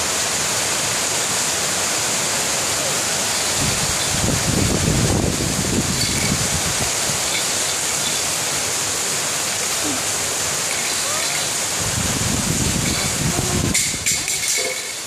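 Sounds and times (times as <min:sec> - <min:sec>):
steady rushing hiss: 0:00.0 - 0:15.0
faint baby sounds: 0:09.8 - 0:11.6, 0:13.0 - 0:14.5.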